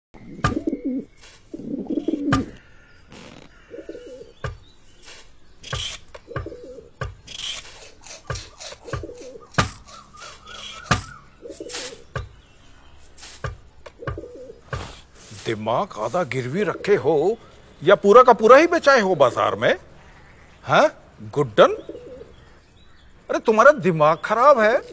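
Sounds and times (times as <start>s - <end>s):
pigeons cooing: 0.2s - 4.6s, 5.6s - 12.4s, 13.8s - 15.1s, 21.6s - 22.6s.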